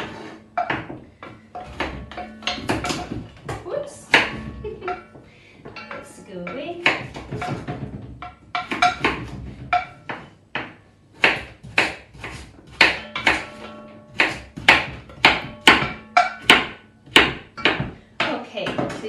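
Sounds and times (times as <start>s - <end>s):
knife chopping on wooden board: 8.6s - 18.9s.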